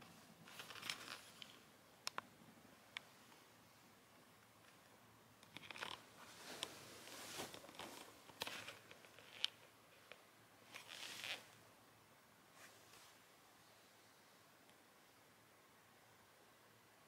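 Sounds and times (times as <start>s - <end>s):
small sharp clicks: 0.6s - 2.3s
faint bedding rustling: 6.0s - 9.2s, 10.7s - 11.6s, 12.5s - 13.9s.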